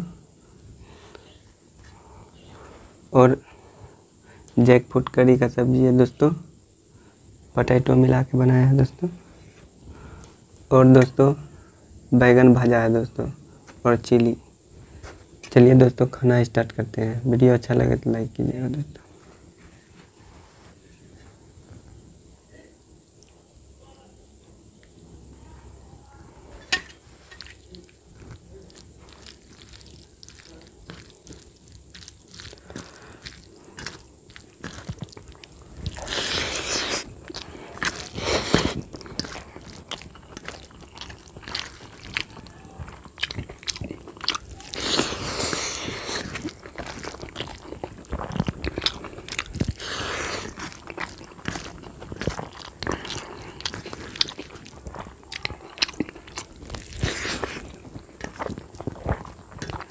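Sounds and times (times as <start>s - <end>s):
wet squishing of rice: 27.1s - 59.9s.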